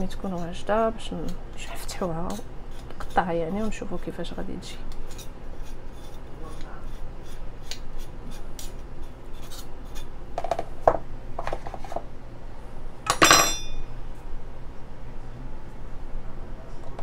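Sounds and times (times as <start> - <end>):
metallic clink: 13.1 - 13.9.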